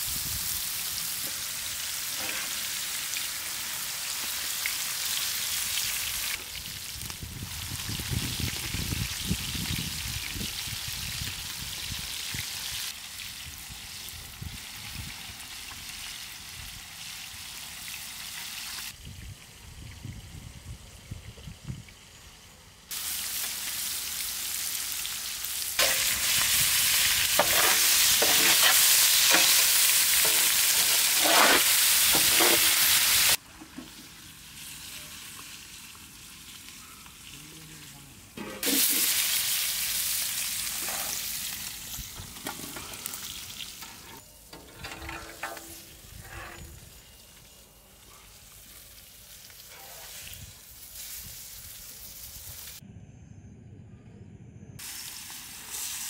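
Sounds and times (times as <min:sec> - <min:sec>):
food sizzling in hot oil: 0:00.0 - 0:19.2, 0:22.9 - 0:37.4, 0:38.2 - 0:52.8, 0:54.8 - 0:56.0
utensil stirring and scraping: 0:27.3 - 0:32.8.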